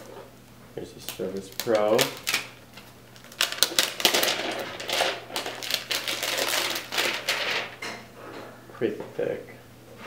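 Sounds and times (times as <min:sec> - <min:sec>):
plastic wrapping crinkling: 0:00.9 - 0:07.9.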